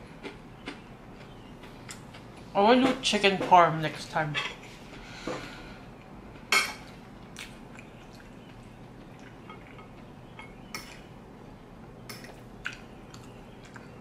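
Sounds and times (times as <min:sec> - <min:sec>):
faint chewing: 0:06.8 - 0:10.1, 0:12.1 - 0:14.0.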